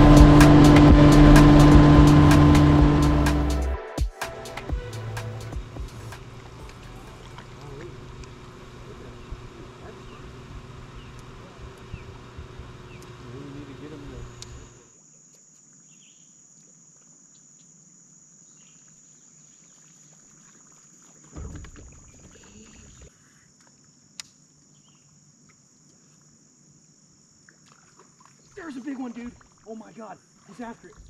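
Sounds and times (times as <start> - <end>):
high-pitched insect drone: 0.0 - 3.5
low rumble: 0.0 - 3.8.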